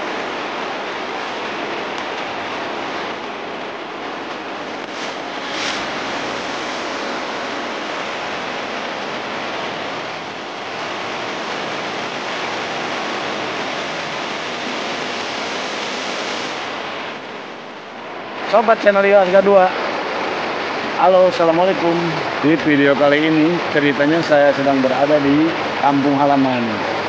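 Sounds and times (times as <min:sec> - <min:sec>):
river rushing over rocks: 0:00.0 - 0:27.0.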